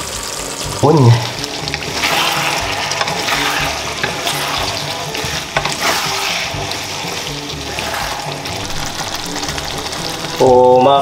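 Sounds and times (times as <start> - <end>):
background music: 0.0 - 11.0
braise sizzling in a pan: 0.0 - 11.0
spatula stirring: 1.3 - 11.0.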